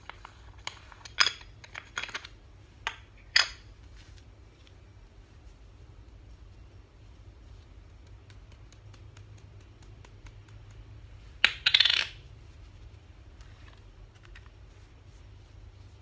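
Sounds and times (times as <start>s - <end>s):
small object clattering on hard surface: 11.4s - 12.2s.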